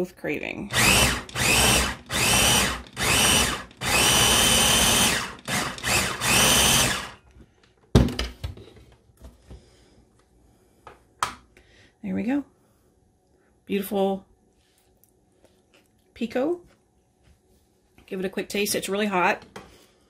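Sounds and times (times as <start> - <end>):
electric food chopper whirring: 0.7 - 7.2.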